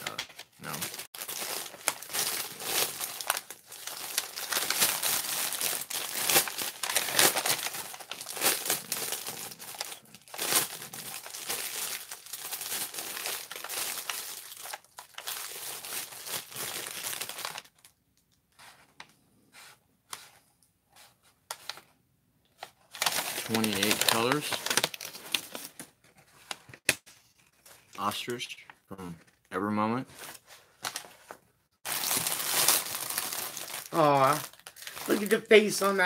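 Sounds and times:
plastic bag crinkling: 0:00.1 - 0:17.9, 0:22.8 - 0:25.8, 0:31.8 - 0:36.0.

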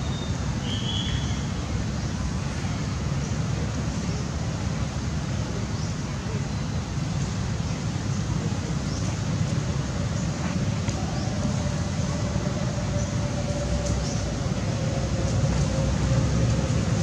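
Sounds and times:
low rumbling background noise: 0:00.0 - 0:17.0.

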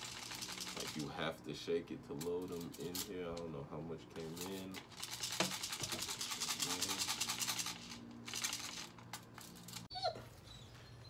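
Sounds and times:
steel bbs rattling in gun: 0:00.0 - 0:01.1, 0:04.2 - 0:09.9.

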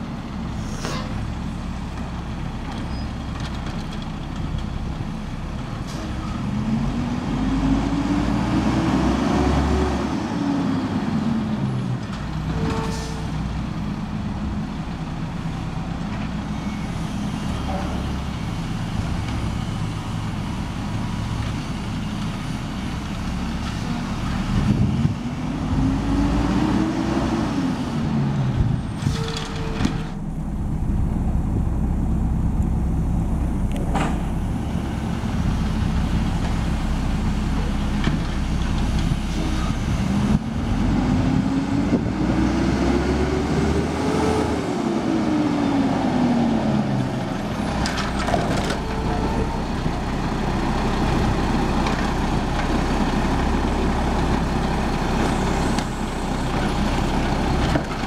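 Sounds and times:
air brakes hissing: 0:00.5 - 0:01.2
garbage truck diesel engine revving: 0:05.6 - 0:11.8, 0:22.8 - 0:29.1, 0:30.0 - 0:58.0.

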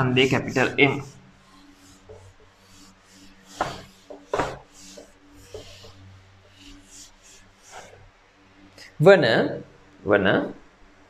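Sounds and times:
eraser rubbing on whiteboard: 0:00.0 - 0:08.1.

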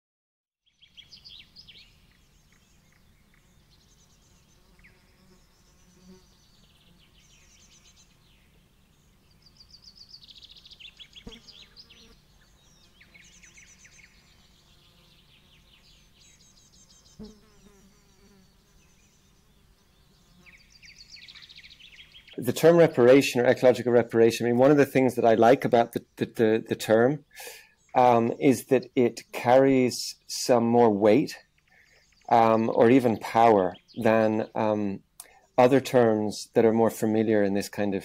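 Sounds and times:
small bird trilling and chirping: 0:00.6 - 0:22.4, 0:33.6 - 0:34.6.

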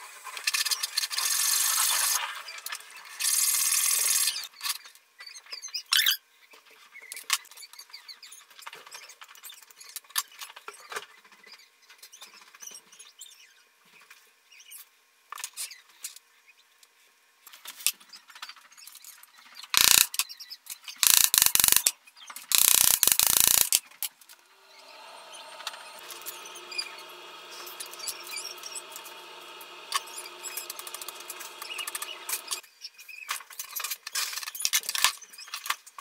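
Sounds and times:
steady hum: 0:22.6 - 0:32.6.

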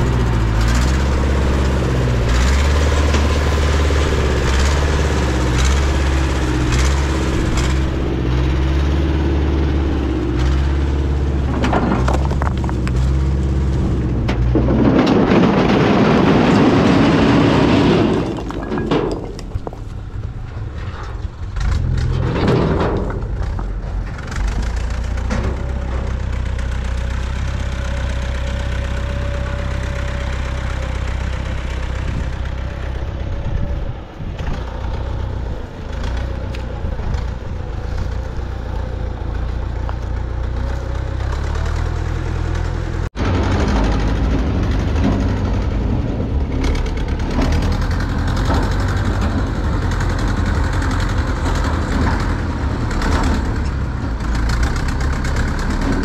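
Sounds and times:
tractor engine running: 0:00.0 - 0:56.0
rocks clattering out of trailer: 0:11.4 - 0:24.1.

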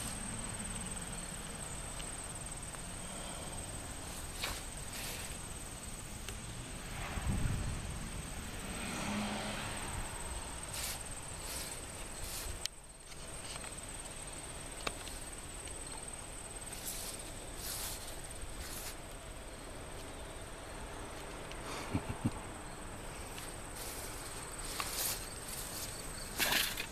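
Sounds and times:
insects trilling: 0:00.0 - 0:26.9.

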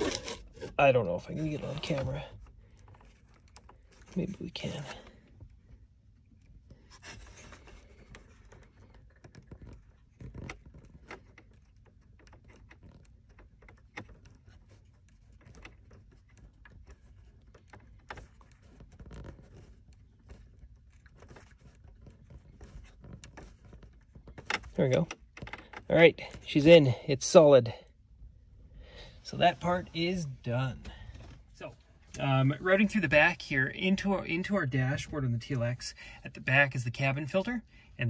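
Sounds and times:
plastic connector scrapes and clicks: 0:00.0 - 0:26.6.

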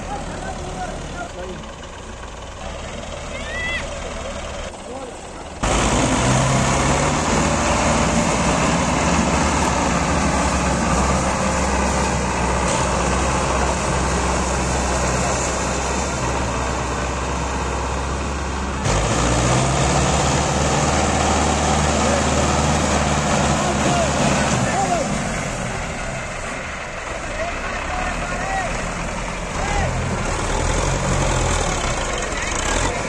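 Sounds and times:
tractor diesel engines under load: 0:00.0 - 0:33.0.

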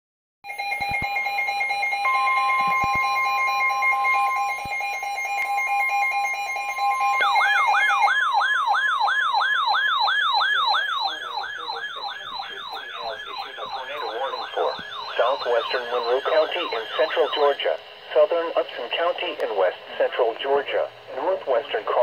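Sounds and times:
electronic alarm beep: 0:00.4 - 0:17.7
steady warning alarm tone: 0:00.4 - 0:22.0
warbling siren alarm: 0:00.5 - 0:18.0.

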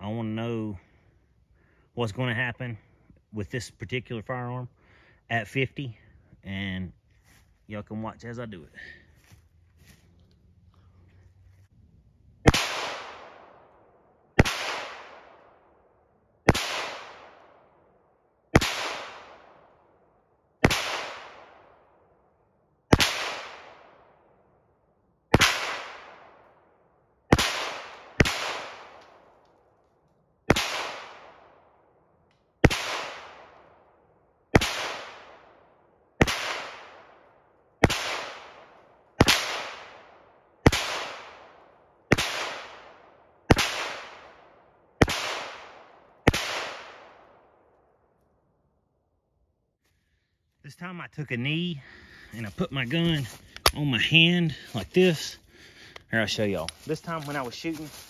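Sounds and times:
pistol shots echoing: 0:12.4 - 0:15.7, 0:16.4 - 0:17.8, 0:18.5 - 0:19.8, 0:20.6 - 0:21.9, 0:22.9 - 0:24.3, 0:25.3 - 0:26.6, 0:27.3 - 0:29.3, 0:30.5 - 0:31.7, 0:32.6 - 0:33.9, 0:34.5 - 0:47.6.

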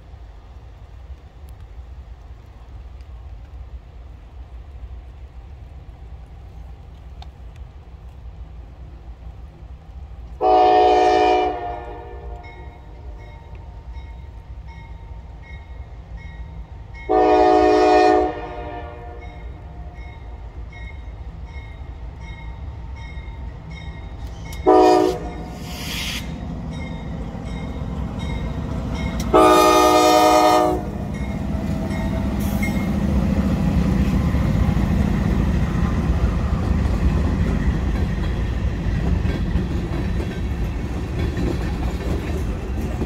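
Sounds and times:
steady low train rumble: 0:00.0 - 0:43.0
locomotive air horn blasts: 0:10.4 - 0:12.8, 0:17.1 - 0:19.4, 0:24.6 - 0:26.4, 0:29.2 - 0:31.2.

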